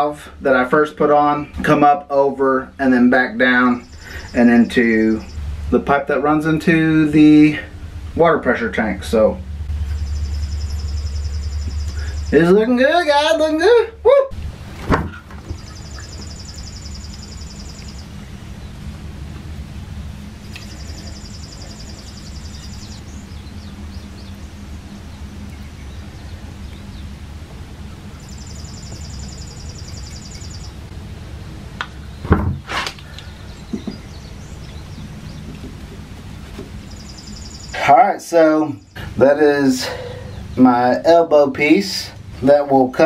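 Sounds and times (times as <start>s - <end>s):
steady low hum: 0.0s - 43.0s
high buzzing trill: 3.6s - 14.0s, 15.6s - 18.5s, 20.3s - 25.1s, 27.6s - 30.9s.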